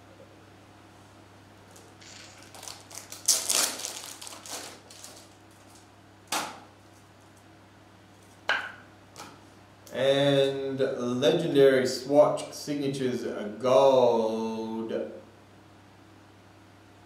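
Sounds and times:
crinkly packaging rustle: 0:01.7 - 0:05.9.

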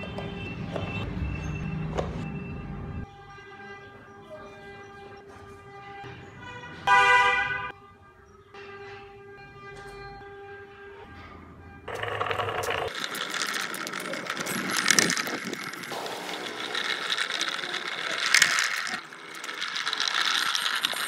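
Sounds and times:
toy car motor whirring: 0:11.9 - 0:21.0
wheels rolling over concrete: 0:11.9 - 0:21.0.

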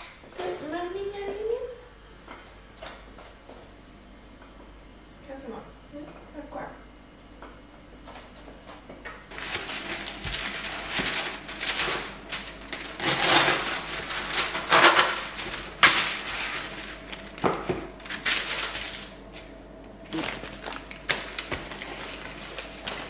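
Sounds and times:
baking paper rustling and crinkling: 0:09.3 - 0:23.0.

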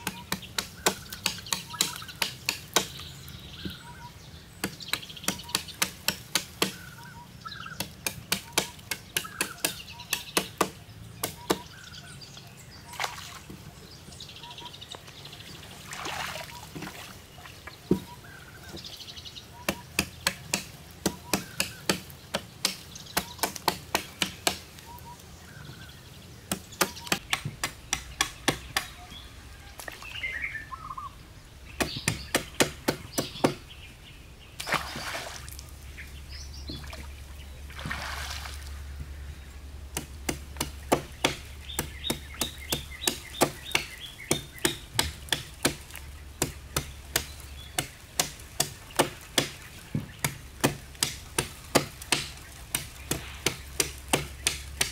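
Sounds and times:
hand tool striking wooden poles: 0:00.0 - 0:03.8, 0:04.6 - 0:06.9, 0:07.6 - 0:11.7, 0:19.6 - 0:24.7, 0:26.5 - 0:29.1, 0:31.8 - 0:33.6, 0:39.9 - 0:54.9
birds chirping: 0:00.0 - 0:54.9.

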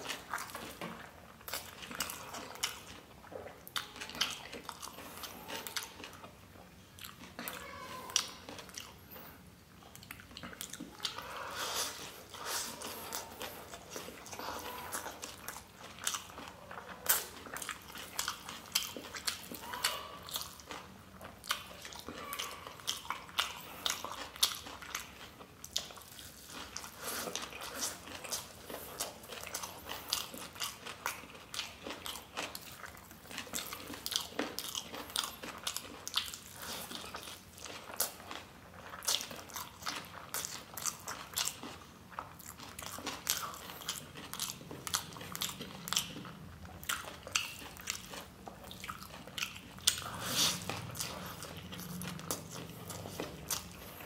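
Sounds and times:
person chewing noodles: 0:00.0 - 0:54.0.

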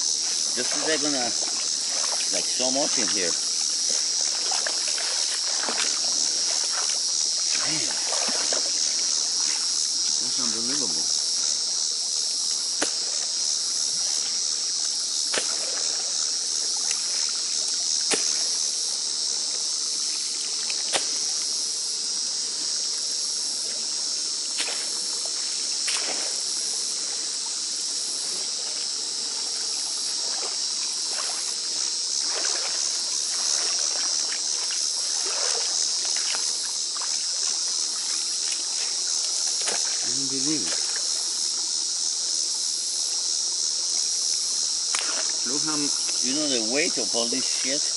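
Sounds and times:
rake splashing through water: 0:00.0 - 0:09.8, 0:12.7 - 0:13.4, 0:15.3 - 0:17.4, 0:18.0 - 0:18.6, 0:20.6 - 0:21.3, 0:24.5 - 0:26.5, 0:30.0 - 0:41.1, 0:44.9 - 0:46.8
insects chirping: 0:00.0 - 0:47.9.

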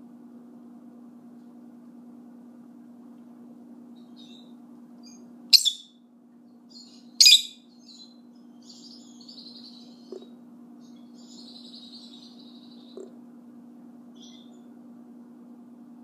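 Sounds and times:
faint low hum: 0:00.0 - 0:16.0
lovebirds chirping: 0:04.0 - 0:06.0, 0:06.7 - 0:13.1, 0:14.2 - 0:14.7.

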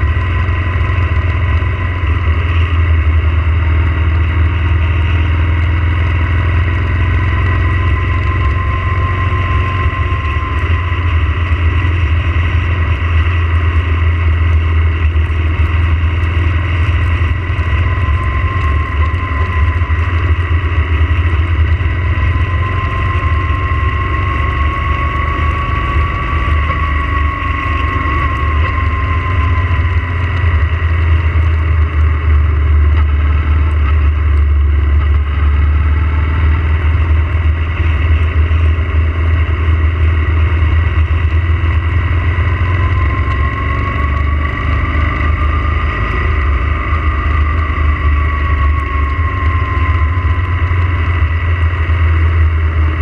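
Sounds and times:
faint whine: 0:00.0 - 0:53.0
motorcycle engine: 0:00.0 - 0:53.0.

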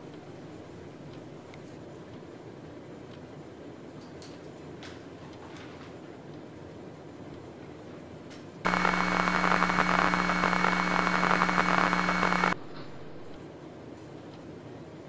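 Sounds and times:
electronic static burst: 0:08.7 - 0:13.3
high whine: 0:08.7 - 0:13.4
low hum: 0:08.7 - 0:13.4.

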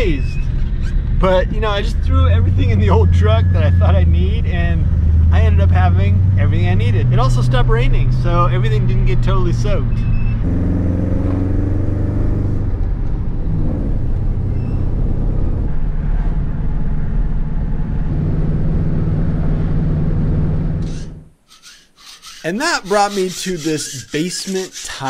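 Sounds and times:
road noise: 0:00.0 - 0:25.0
truck engine driving: 0:00.0 - 0:25.0.

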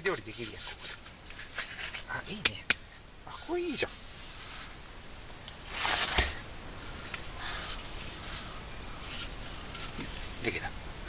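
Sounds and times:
wood scraping: 0:00.0 - 0:02.6, 0:05.4 - 0:10.6
faint rustling: 0:03.8 - 0:10.7.

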